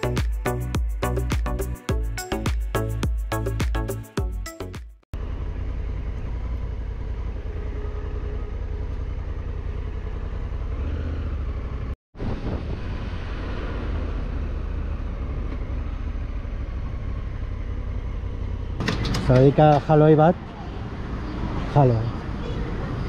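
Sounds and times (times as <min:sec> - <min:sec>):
motorcycle engine running: 0:05.2 - 0:12.0, 0:13.7 - 0:19.6.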